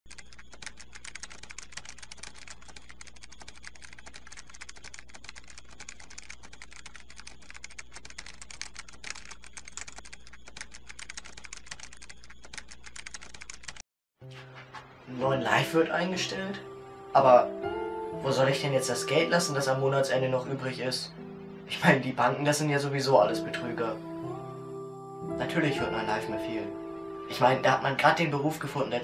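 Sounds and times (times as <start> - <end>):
keyboard typing: 0.1 - 15.0.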